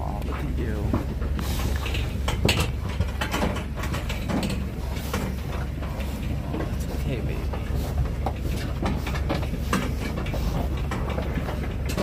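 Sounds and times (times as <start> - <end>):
knocks and rattles of metal walls: 0.0 - 12.0
pigs shifting in trailer: 0.0 - 12.0
steady low hum: 0.0 - 12.0.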